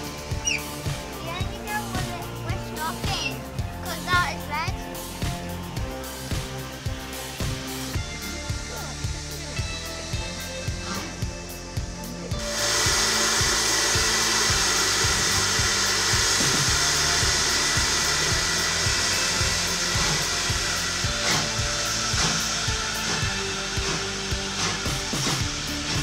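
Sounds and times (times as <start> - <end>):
background music: 0.0 - 26.0
loud hiss of escaping steam: 5.8 - 26.0.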